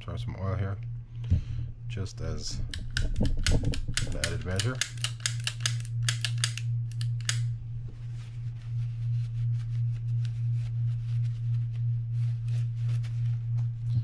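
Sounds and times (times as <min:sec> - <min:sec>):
steady low wavering hum: 0:00.0 - 0:14.0
fishing reel clicks: 0:02.7 - 0:07.5
cloth rustling: 0:07.7 - 0:14.0.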